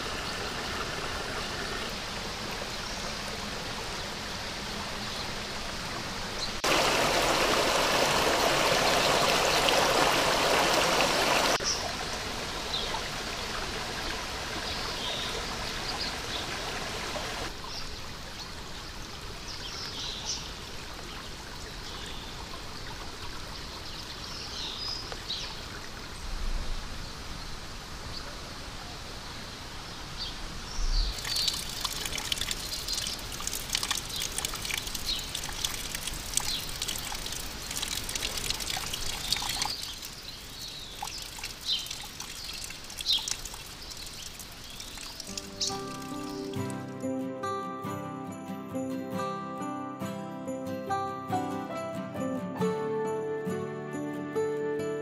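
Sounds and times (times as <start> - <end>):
stream trickling over rocks: 0.0 - 26.4, 31.1 - 47.6
bird chirps: 42.5 - 46.9.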